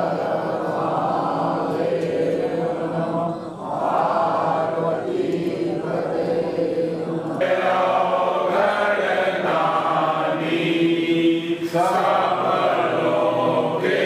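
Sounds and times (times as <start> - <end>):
group chanting a hymn: 0.0 - 14.0.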